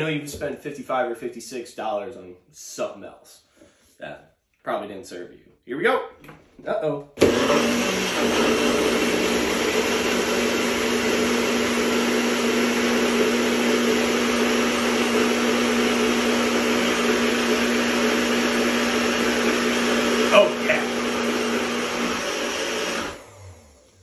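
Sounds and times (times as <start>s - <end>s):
blender motor whirring: 7.2s - 24.0s.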